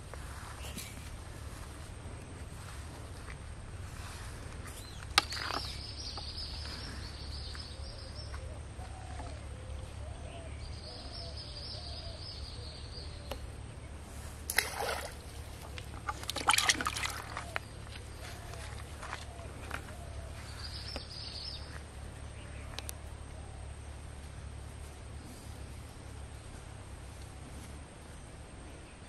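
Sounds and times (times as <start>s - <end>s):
fish splashing in bucket of water: 14.4s - 17.8s.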